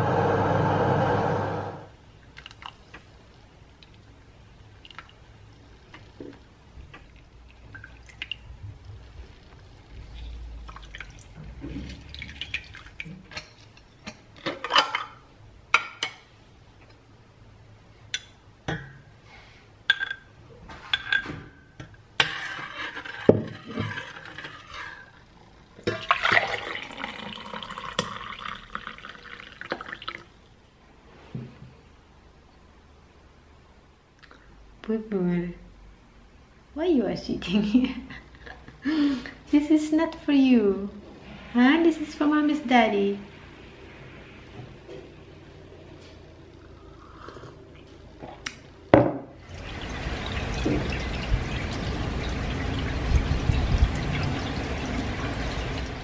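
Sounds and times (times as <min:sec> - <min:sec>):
tea pouring into glass: 0:25.8 - 0:30.3.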